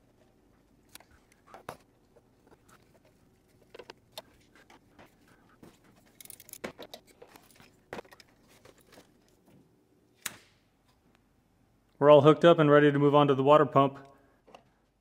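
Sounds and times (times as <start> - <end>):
metal clinks and knocks: 5.6 - 9.1.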